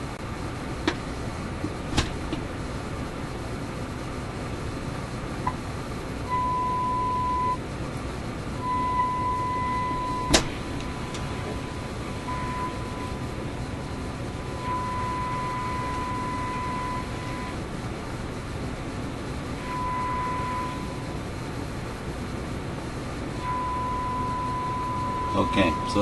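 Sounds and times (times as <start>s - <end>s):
radio test tone: 8.6s - 17.6s, 19.6s - 21.2s, 23.4s - 26.0s
radio static hiss: 9.6s - 17.7s, 25.1s - 26.0s.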